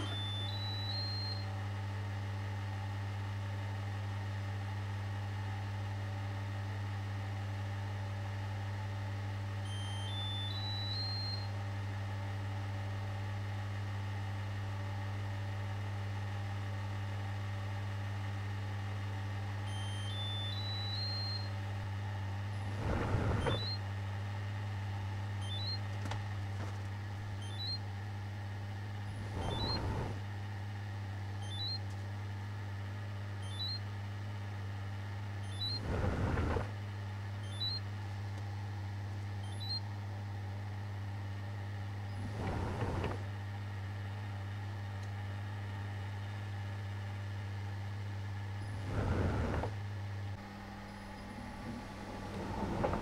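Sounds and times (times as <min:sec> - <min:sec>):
tumble dryer humming: 0:00.0 - 0:03.5, 0:19.1 - 0:46.0, 0:48.3 - 0:53.0.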